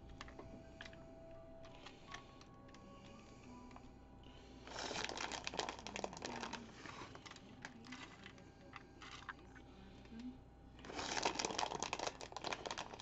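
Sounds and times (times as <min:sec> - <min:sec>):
plastic packaging crinkling: 0:04.7 - 0:08.3, 0:10.8 - 0:13.0.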